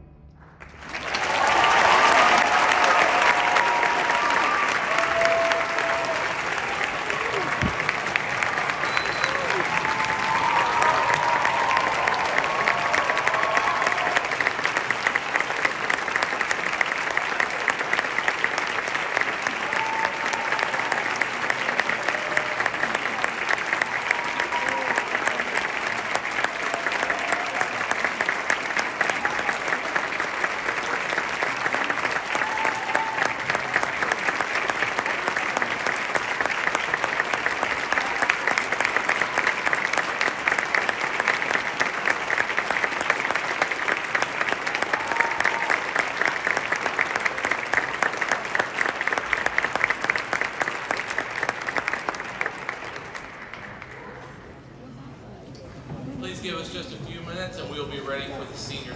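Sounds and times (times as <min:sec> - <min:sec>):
audience applauding: 0:00.0 - 0:54.9.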